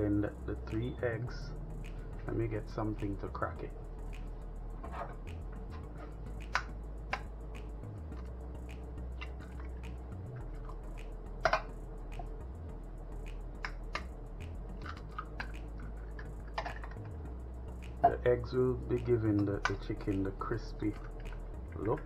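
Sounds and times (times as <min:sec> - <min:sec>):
steady low hum: 0:00.0 - 0:22.0
eggs tapped and cracked: 0:14.8 - 0:17.1.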